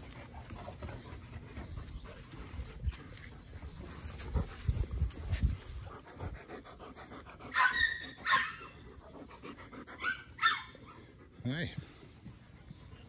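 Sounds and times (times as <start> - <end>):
dogs panting and snuffling: 0.0 - 13.0
high-pitched dog cries: 7.5 - 8.8, 10.0 - 11.0.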